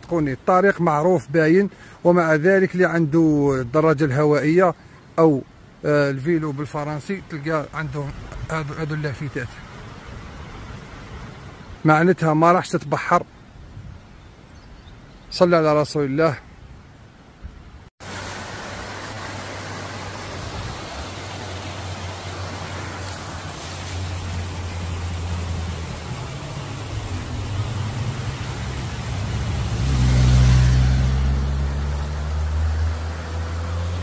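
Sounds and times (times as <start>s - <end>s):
motorcycle passing: 21.9s - 34.0s.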